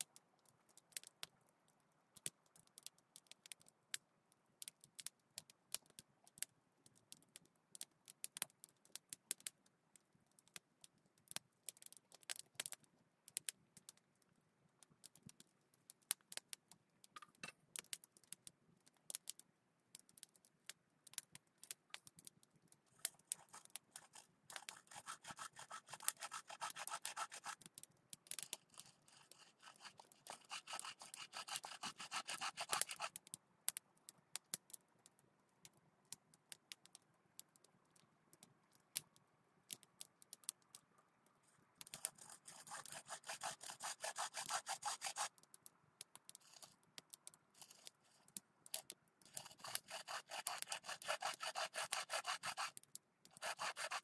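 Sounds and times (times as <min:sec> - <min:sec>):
hand saw cutting wood: 0:23.3 - 0:27.6, 0:28.6 - 0:33.1, 0:42.0 - 0:45.3, 0:47.6 - 0:47.9, 0:49.3 - 0:54.0.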